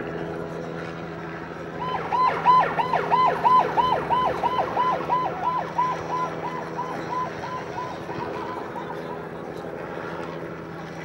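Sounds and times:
ambulance siren yelping: 1.8 - 9.7.

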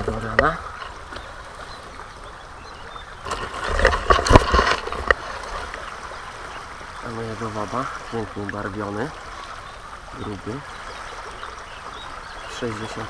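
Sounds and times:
river water: 0.0 - 13.0
rustling and knocks on microphone: 3.2 - 5.8.

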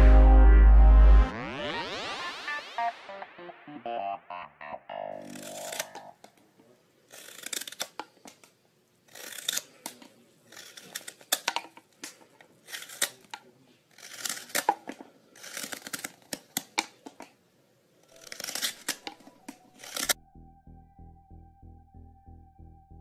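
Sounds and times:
knife scraping wood: 5.2 - 6.1, 7.1 - 8.4, 9.1 - 17.2, 18.0 - 20.2.

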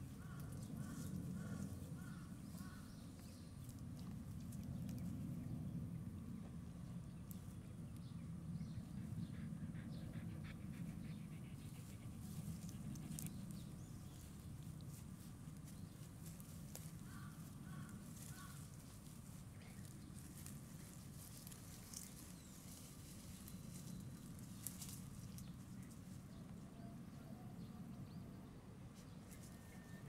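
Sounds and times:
low steady rumble: 0.0 - 30.0
puppies rustling through grass: 11.5 - 26.6.

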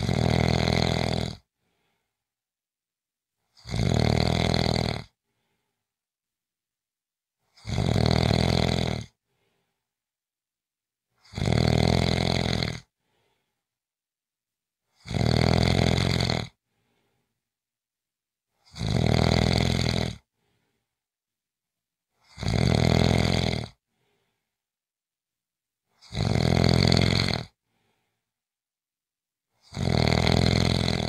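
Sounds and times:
person snoring: 0.0 - 2.0, 3.5 - 5.2, 7.5 - 9.2, 11.2 - 13.4, 14.9 - 16.6, 18.6 - 20.3, 22.2 - 24.2, 26.0 - 27.6, 29.6 - 31.0
faint breath: 1.6 - 2.3, 5.2 - 5.9, 9.2 - 9.9, 13.0 - 13.8, 16.6 - 17.4, 20.3 - 21.1, 23.9 - 24.6, 27.6 - 28.4.

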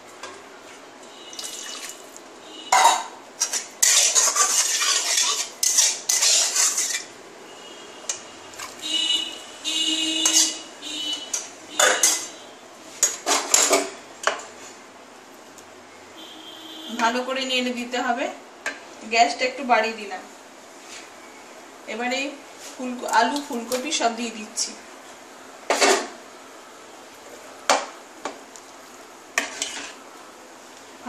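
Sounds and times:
liquid pouring into pot: 1.4 - 2.2
metal spoon scraping cookware: 2.8 - 7.1, 10.2 - 10.6, 29.4 - 30.0.

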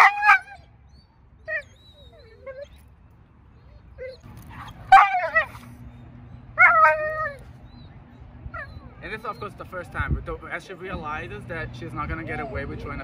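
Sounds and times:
dog barking: 0.0 - 0.5, 4.5 - 5.6
dog whining and yelping: 0.0 - 2.9, 3.5 - 9.6.

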